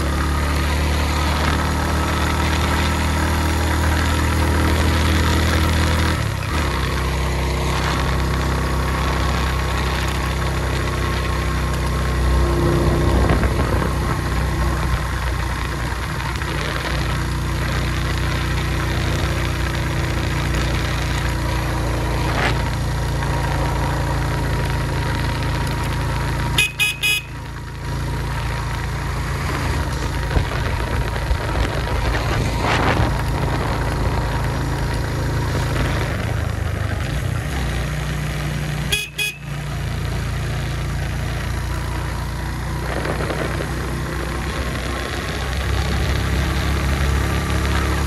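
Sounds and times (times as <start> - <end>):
motorcycle engine: 0.0 - 48.0
horn short beeps: 26.5 - 27.5, 38.9 - 39.6.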